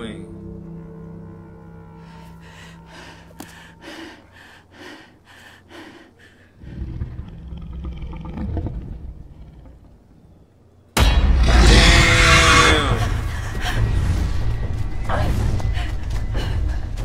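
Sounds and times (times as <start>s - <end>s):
low rumbling drone: 0.0s - 5.3s, 6.6s - 17.0s
woman breathing heavily: 2.0s - 6.8s, 15.6s - 17.0s
roaring cry falling in pitch: 11.4s - 13.1s.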